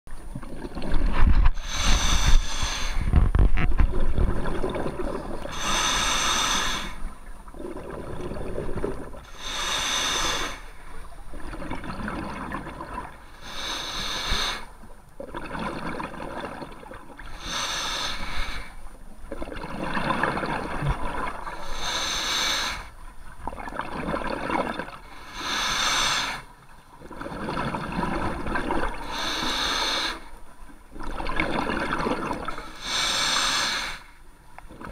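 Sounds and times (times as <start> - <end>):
exhaled bubbles hissing: 0.4 - 34.1
diver inhaling through regulator: 1.5 - 3.3, 5.4 - 7.2, 9.3 - 10.8, 13.4 - 14.8, 17.3 - 18.8, 21.5 - 23.0, 25.0 - 26.5, 29.0 - 30.4, 32.5 - 34.2.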